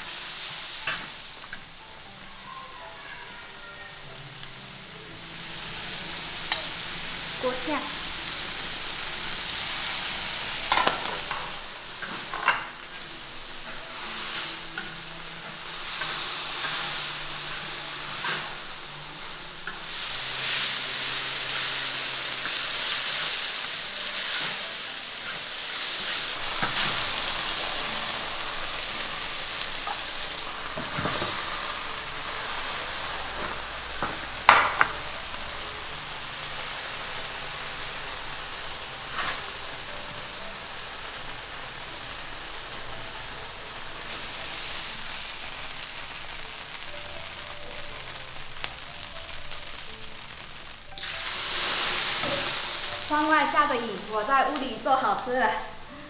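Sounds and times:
meat sizzling in a hot pan: 0.0 - 56.0
spatula clanking and scraping pan: 10.6 - 13.0.

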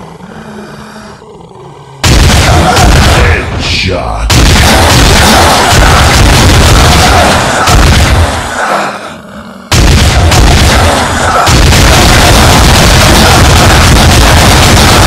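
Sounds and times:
distorted gunfire: 2.0 - 8.5, 9.7 - 15.0.

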